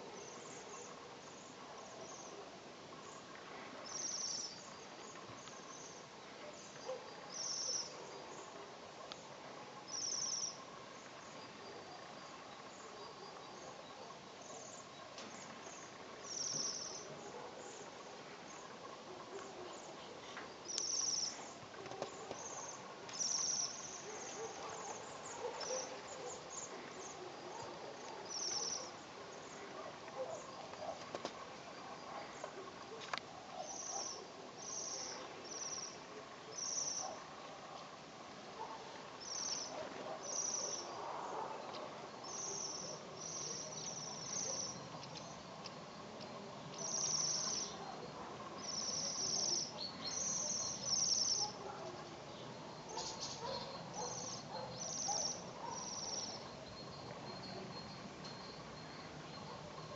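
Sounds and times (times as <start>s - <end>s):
birds calling in high trills: 3.9s - 8.6s, 9.8s - 32.6s, 33.5s - 37.5s, 38.6s - 59.9s.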